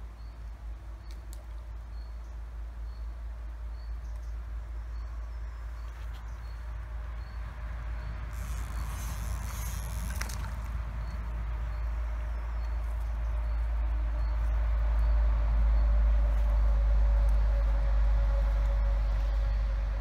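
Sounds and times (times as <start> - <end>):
fish splashing in water: 8.4 - 10.8
low rumble: 10.2 - 20.0.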